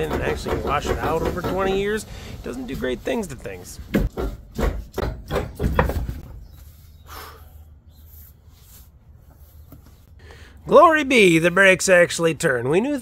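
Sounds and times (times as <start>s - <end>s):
wheel thumping and scraping: 0.0s - 6.8s.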